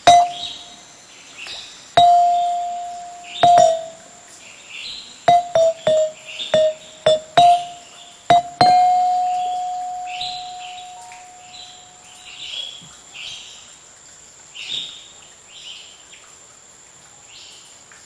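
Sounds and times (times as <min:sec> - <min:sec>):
slow struck-note melody: 0:00.0 - 0:00.8, 0:02.0 - 0:04.4, 0:05.3 - 0:12.3
birdsong chirps: 0:00.0 - 0:13.4.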